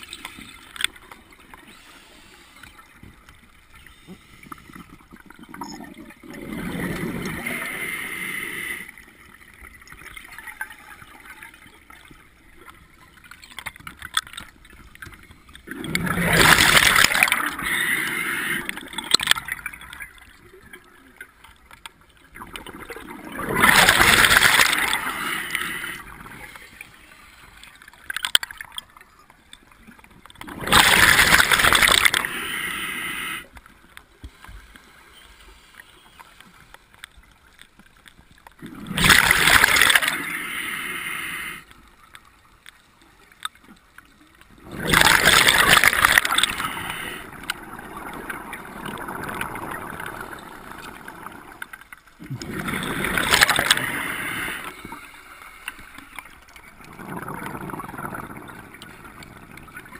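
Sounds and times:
underwater gurgling: 0.0s - 59.9s
exhaled bubbles rushing: 5.2s - 8.0s, 15.6s - 17.8s, 22.4s - 26.5s, 30.4s - 32.4s, 38.6s - 40.4s, 44.6s - 51.6s, 52.2s - 54.7s, 56.6s - 59.9s.

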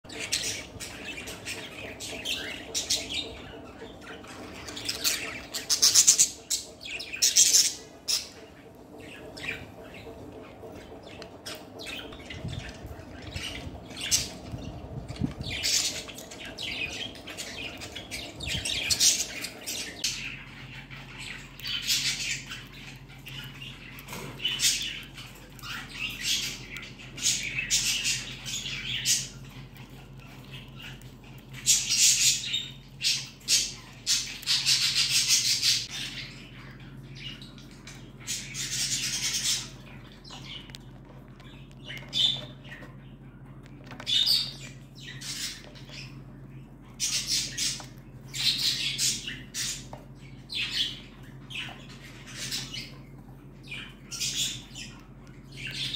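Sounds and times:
birds chirping and squawking: 0.0s - 55.9s
bird pecking and crunching pellets: 40.2s - 44.4s.

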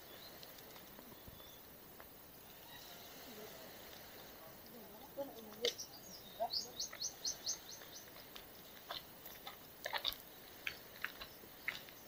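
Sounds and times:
small bird chirping: 5.2s - 12.0s.

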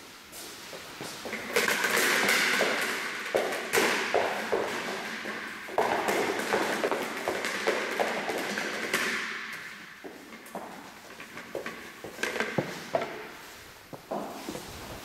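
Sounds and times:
scuffing noise: 10.0s - 15.0s.

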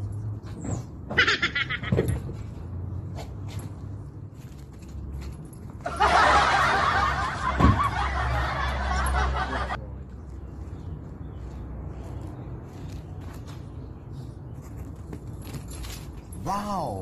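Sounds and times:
laughter sound effect: 5.9s - 9.8s
thump: 7.6s - 7.9s.

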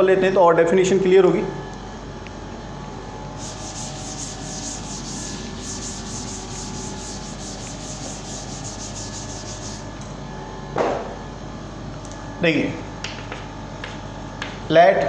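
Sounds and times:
duster scrubbing a chalkboard: 3.4s - 9.9s.

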